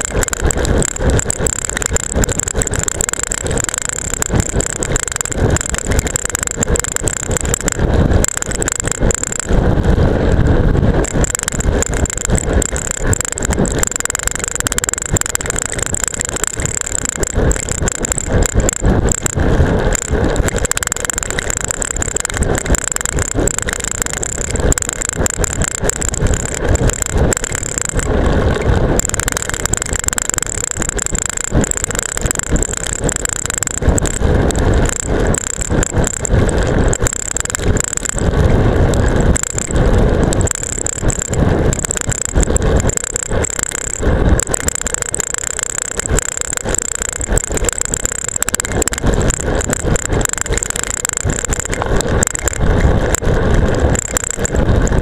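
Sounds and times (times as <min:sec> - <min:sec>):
camera rattling in mount: 0:00.0 - 0:09.6, 0:11.0 - 0:55.0
tyre noise on rough pavement: 0:00.0 - 0:55.0.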